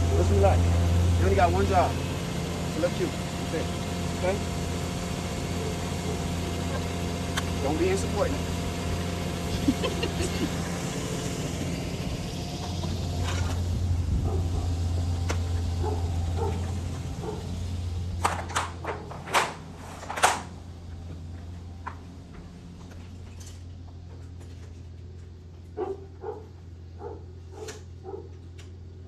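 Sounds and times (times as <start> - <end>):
sharp clicks and knocks: 18.2 - 24.5.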